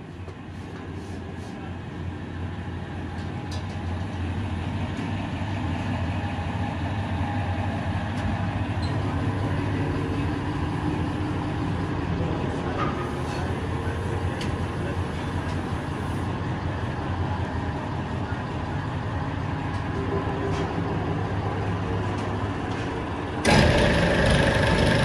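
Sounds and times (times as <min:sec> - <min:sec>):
presses humming: 0:23.3 - 0:25.0.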